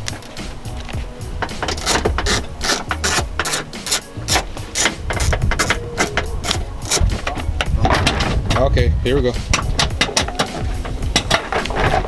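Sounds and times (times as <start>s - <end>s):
socket ratchet clicking: 1.6s - 7.1s.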